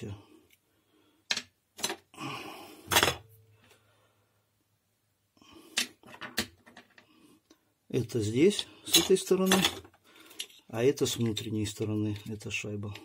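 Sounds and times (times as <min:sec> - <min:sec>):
metal and plastic parts knocking: 0:05.8 - 0:07.0.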